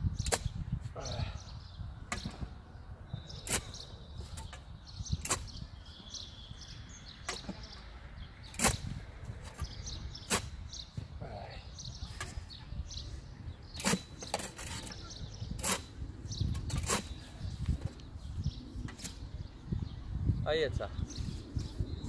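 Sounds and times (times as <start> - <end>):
birds chirping faintly: 0.1 - 22.0
post-hole digger striking soil: 5.2 - 5.6, 8.4 - 10.6, 13.7 - 15.9, 16.5 - 17.2.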